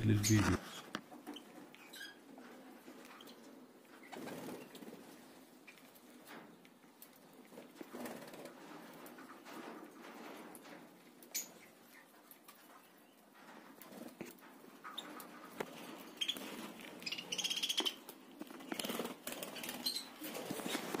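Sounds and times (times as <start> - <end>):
beaks pecking leaves: 0.0 - 21.0
budgerigars chirping and chattering: 16.1 - 18.0, 18.7 - 20.1.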